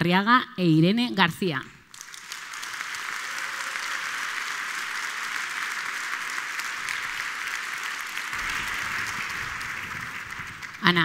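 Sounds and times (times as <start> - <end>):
audience applauding: 1.9 - 11.0.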